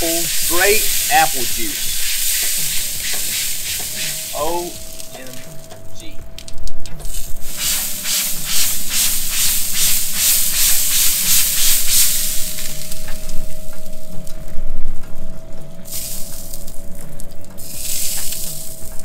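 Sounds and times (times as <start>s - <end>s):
spray bottle squirting hiss: 0.0s - 5.1s, 7.1s - 13.0s
faint steady whine: 0.0s - 19.0s.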